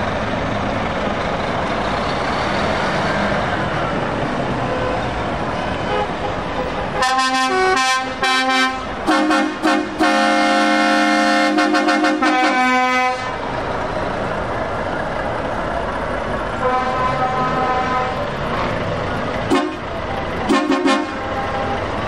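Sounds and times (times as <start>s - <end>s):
truck engine and road noise: 0.0s - 22.0s
truck air horns: 5.8s - 13.4s, 16.6s - 18.3s, 19.5s - 21.8s.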